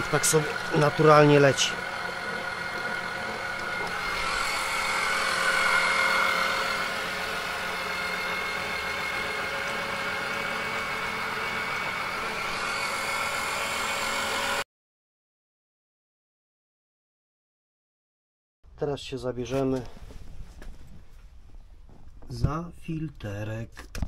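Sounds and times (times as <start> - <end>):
electric pump running: 0.0 - 14.6.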